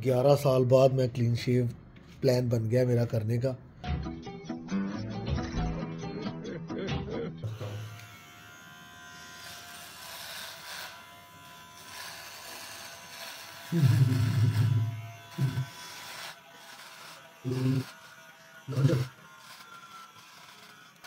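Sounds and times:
beard trimmer buzzing: 0:07.4 - 0:21.0.

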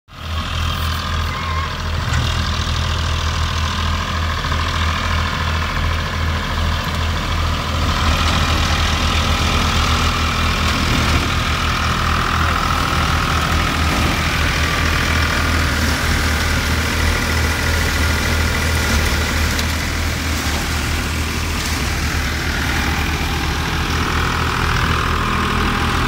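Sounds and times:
tractor diesel engine running: 0:00.1 - 0:26.0
thresher drum whirring: 0:01.8 - 0:26.0.

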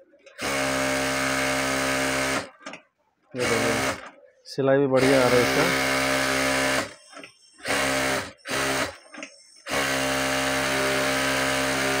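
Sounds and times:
sewing machine stitching fabric: 0:00.3 - 0:02.6, 0:03.4 - 0:04.1, 0:05.0 - 0:09.0, 0:09.6 - 0:12.0.

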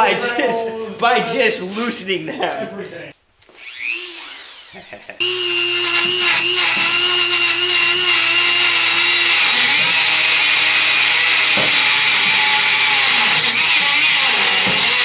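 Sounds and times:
grinder cutting metal bolt: 0:03.6 - 0:15.0.

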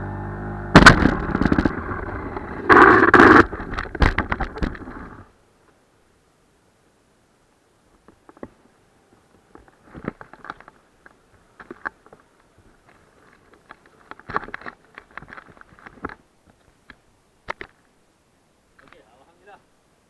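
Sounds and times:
clicks scrapes and crackles: 0:00.9 - 0:05.0, 0:09.6 - 0:17.8.

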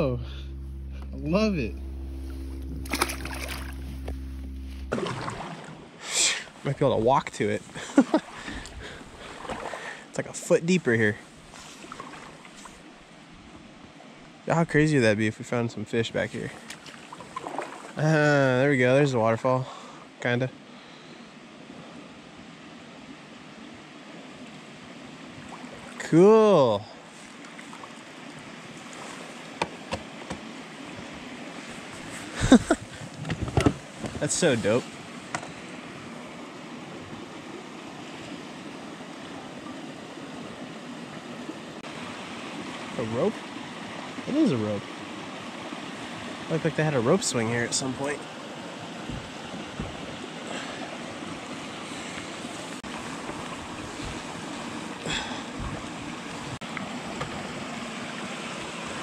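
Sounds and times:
short water splash: 0:00.3 - 0:06.5, 0:08.0 - 0:10.0, 0:11.6 - 0:12.8, 0:16.6 - 0:18.0
water rushing in rocky creek: 0:04.9 - 0:14.6, 0:15.9 - 0:19.1, 0:21.7 - 0:59.0.

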